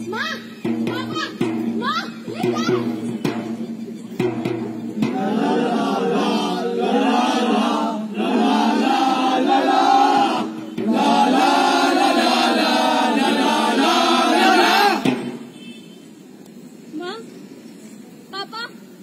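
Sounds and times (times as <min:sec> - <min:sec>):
voices singing together: 0:05.0 - 0:15.3.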